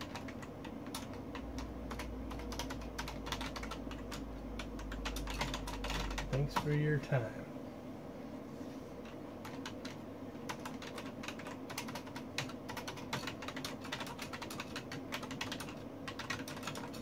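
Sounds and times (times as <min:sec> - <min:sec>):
typing on computer keyboard: 0:00.0 - 0:06.8, 0:09.0 - 0:17.0.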